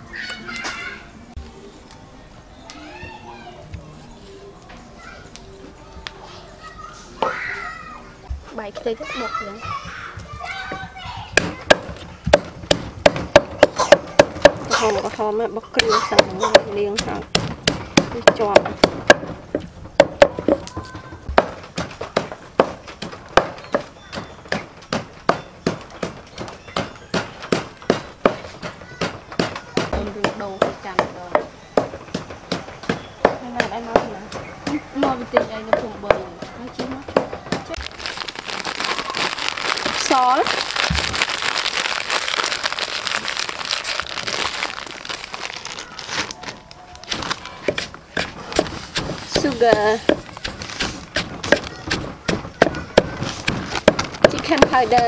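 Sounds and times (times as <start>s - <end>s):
pestle pounding in wooden mortar: 9.6s - 15.1s, 15.8s - 38.5s, 47.6s - 55.0s
granules pouring into mortar: 37.7s - 46.1s
plastic bag crinkling: 37.7s - 47.7s.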